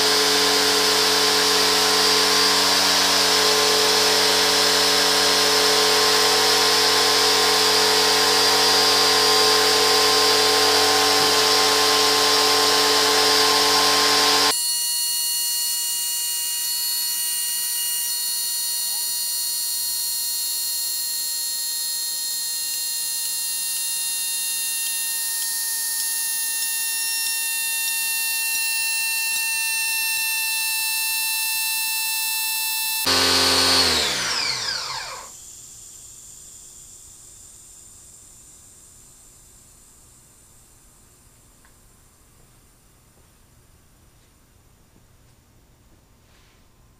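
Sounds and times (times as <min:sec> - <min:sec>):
pressure washer pump running: 0:00.0 - 0:14.5, 0:22.4 - 0:35.4.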